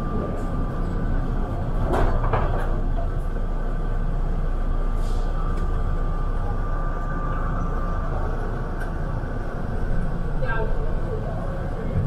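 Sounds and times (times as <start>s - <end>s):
train car low rumble: 0.0s - 12.0s
sliding doors clattering shut: 1.8s - 3.0s.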